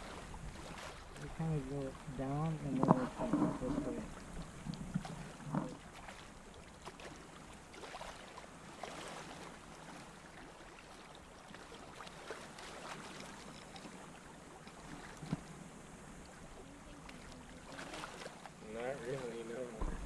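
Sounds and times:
small waves lapping at shore: 0.0s - 20.0s
faint clicks and scrapes: 2.6s - 6.2s, 13.0s - 14.0s.

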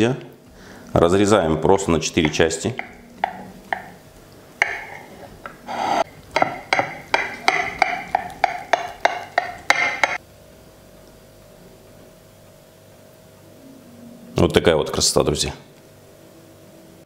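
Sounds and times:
knife scraping on a plate: 4.6s - 10.2s
knife sawing crisp pastry: 4.8s - 6.2s.

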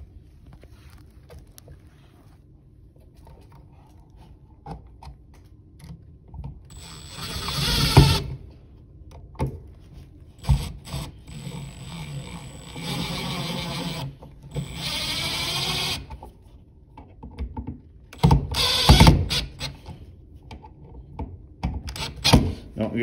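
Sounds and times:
cordless power driver running: 6.7s - 8.4s, 10.4s - 16.1s, 18.2s - 19.8s.

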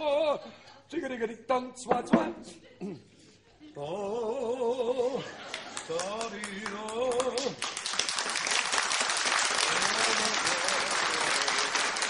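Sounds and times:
audience applauding: 5.5s - 12.0s.

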